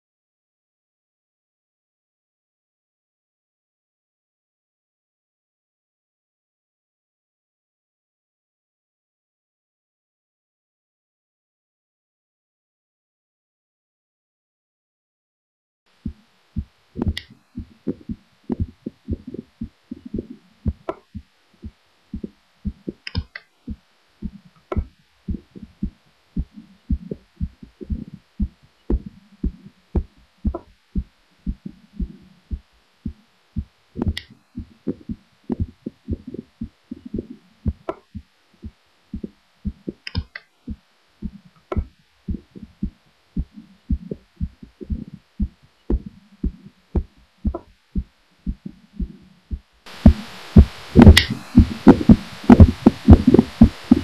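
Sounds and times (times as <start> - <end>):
heartbeat thumps: 16.0 - 54.0.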